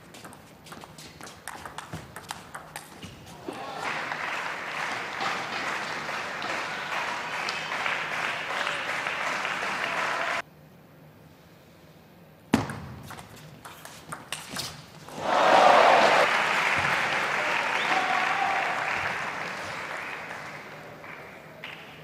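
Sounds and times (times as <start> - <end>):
crowd applauding and cheering: 3.4 - 10.4, 15.2 - 22.0.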